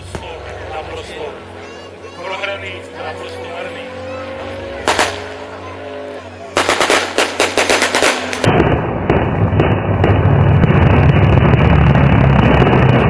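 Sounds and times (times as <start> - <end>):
propeller plane passing overhead: 0.0 - 13.0
rapid gunfire: 4.8 - 5.4, 6.6 - 11.4.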